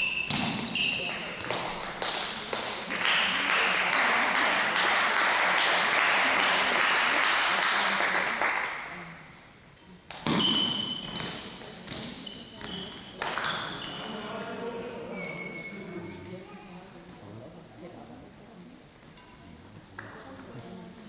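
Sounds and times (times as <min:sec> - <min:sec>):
sneakers squeaking on court: 0:00.0 - 0:01.4, 0:10.2 - 0:14.3
applause in a hall: 0:01.1 - 0:09.0.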